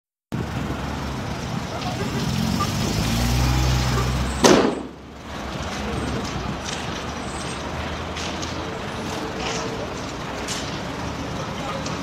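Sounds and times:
road noise: 0.3 - 12.0
loud bang: 4.4 - 5.0.

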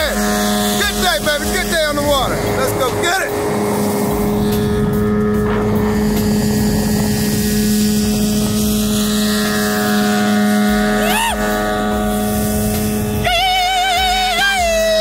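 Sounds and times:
background music: 0.0 - 15.0
outboard motor running: 0.0 - 15.0
rising and falling tone: 0.0 - 15.0
wind and water rushing: 2.0 - 10.9.

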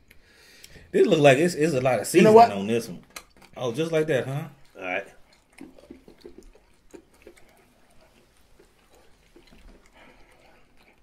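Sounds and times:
peanut crunching while chewed: 2.5 - 11.0.

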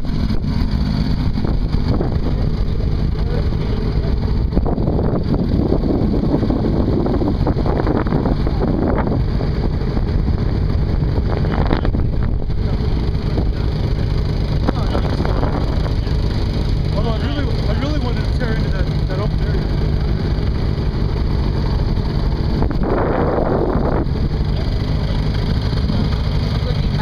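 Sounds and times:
wind rumbling on microphone: 0.0 - 17.6, 19.4 - 27.0
snowmobile engine running: 0.0 - 27.0.

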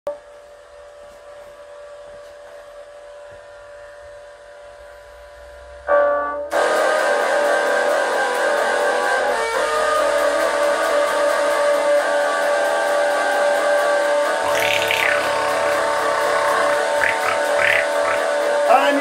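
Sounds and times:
distorted electric guitar strumming: 14.4 - 18.3
faint drone of held notes: 14.4 - 18.4.

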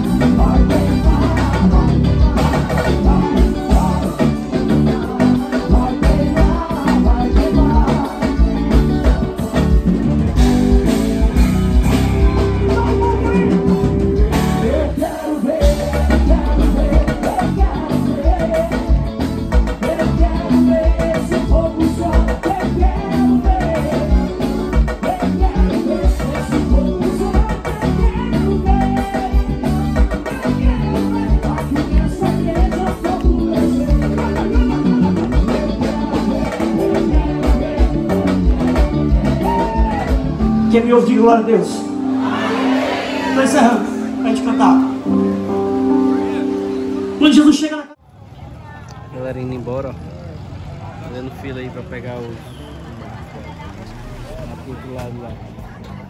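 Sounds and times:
person singing: 0.0 - 11.1, 11.9 - 40.7
electric guitar: 0.0 - 47.7
bass: 0.0 - 56.0
drums: 0.0 - 56.0
keyboards: 0.0 - 56.0
live band over loud speakers: 0.0 - 56.0.

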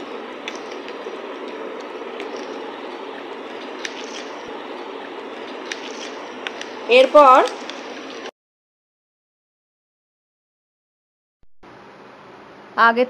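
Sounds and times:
steady even noise: 0.0 - 8.3.

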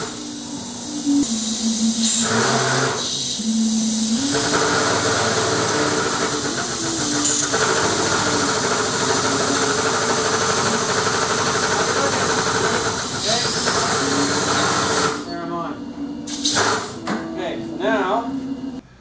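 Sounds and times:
hiss: 0.0 - 7.6, 16.3 - 17.0
crane motor hum: 0.0 - 18.8.

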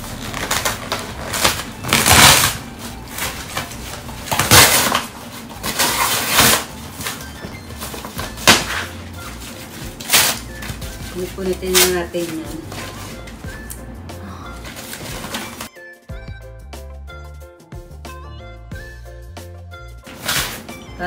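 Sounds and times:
cardboard box being torn: 0.0 - 2.8, 4.3 - 7.2.

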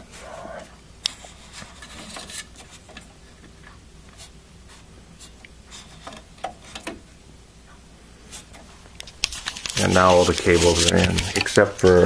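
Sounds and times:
hands rubbing on cables: 8.3 - 12.0.

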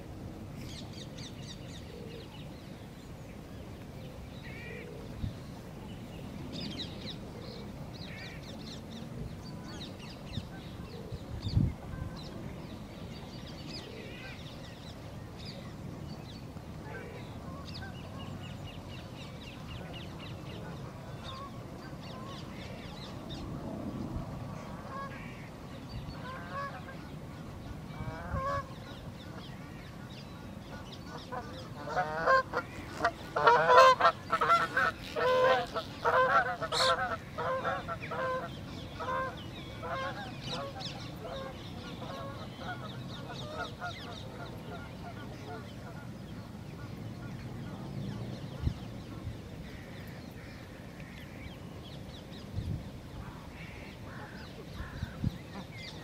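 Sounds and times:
wind rumble on microphone: 5.0 - 29.7, 37.4 - 56.0
geese honking: 31.1 - 46.0.

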